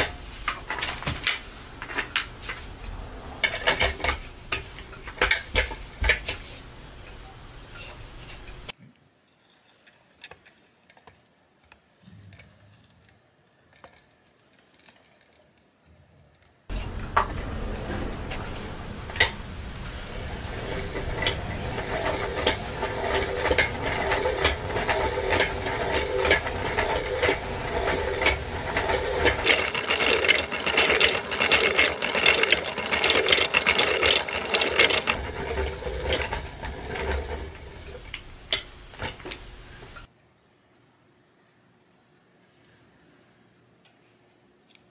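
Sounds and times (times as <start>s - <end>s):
thread reel rattling whir: 16.7s - 40.1s.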